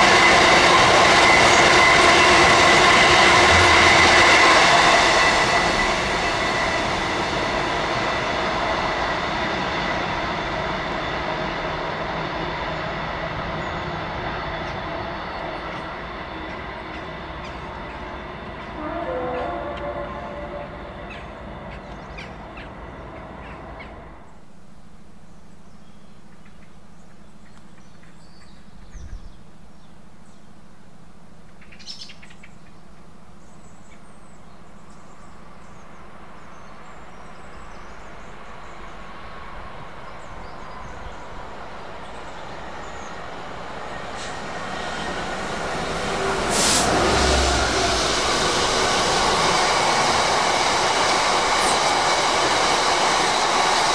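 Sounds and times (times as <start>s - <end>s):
train passing: 0.0s - 53.9s
bird calls: 20.7s - 24.4s.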